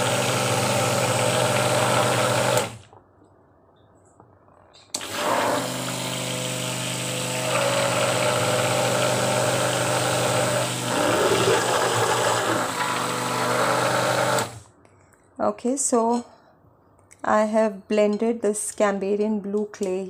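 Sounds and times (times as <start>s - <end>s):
stick blender running: 0.0s - 2.8s, 5.0s - 14.7s.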